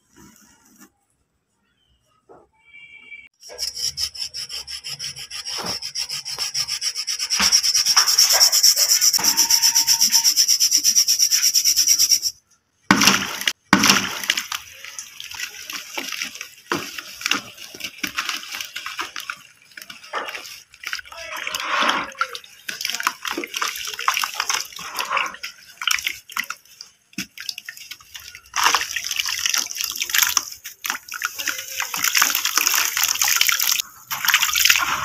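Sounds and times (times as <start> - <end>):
muddy water splashing: 12.9 - 35.0
wet brick crunching: 12.9 - 35.0.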